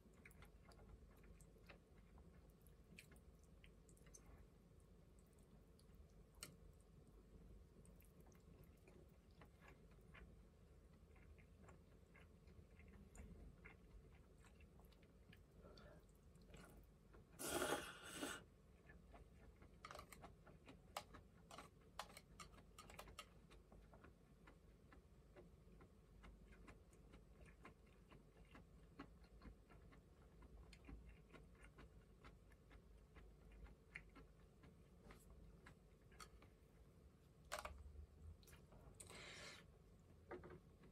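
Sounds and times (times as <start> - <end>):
soft chewing: 0.0 - 40.9.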